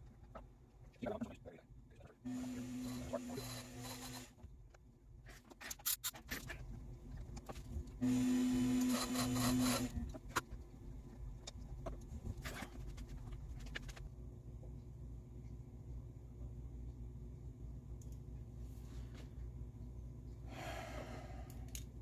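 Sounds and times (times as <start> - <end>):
lathe cutting wood: 8.0 - 9.9
lathe motor hum: 8.0 - 10.0.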